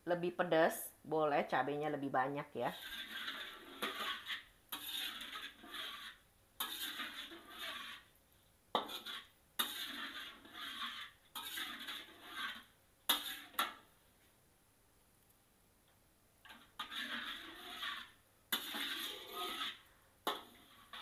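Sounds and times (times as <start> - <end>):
metal spatula scraping wok: 2.5 - 13.9, 16.5 - 21.0.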